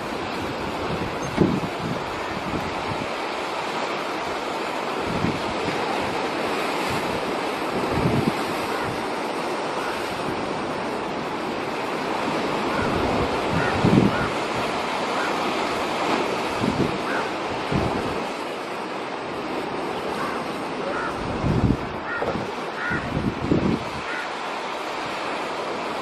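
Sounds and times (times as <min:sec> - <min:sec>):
wind on microphone: 0:00.0 - 0:03.6, 0:04.2 - 0:18.5, 0:20.2 - 0:24.2
sea surf washing: 0:00.0 - 0:26.0.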